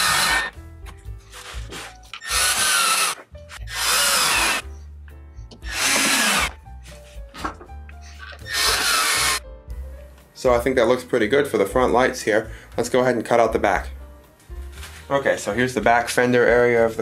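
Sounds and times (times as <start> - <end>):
cordless driver driving screws: 1.3 - 4.6, 5.6 - 6.6, 8.2 - 9.4.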